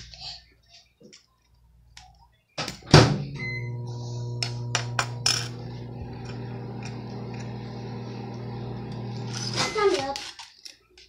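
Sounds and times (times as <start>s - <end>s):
low electrical hum: 3.2s - 10.4s.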